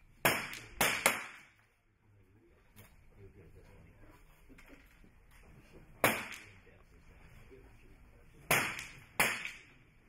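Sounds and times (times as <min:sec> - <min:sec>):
pistol shots with echo: 0:00.2 - 0:01.6, 0:06.0 - 0:06.5, 0:08.5 - 0:09.7.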